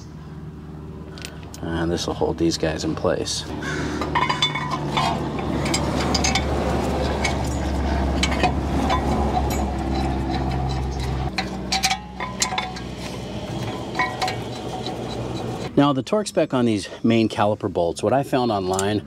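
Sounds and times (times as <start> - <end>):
cordless ratchet motor hum: 4.0 - 15.7
metal clinks of tool and bolt: 4.0 - 15.7.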